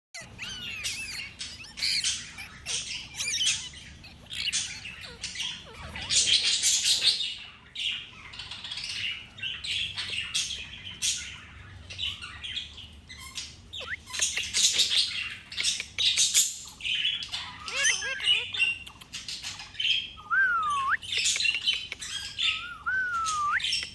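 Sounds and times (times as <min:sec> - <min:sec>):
parakeet gliding whistles: 0:00.2 - 0:06.4, 0:22.2 - 0:23.9
parakeet squawks and chirps: 0:00.2 - 0:23.9.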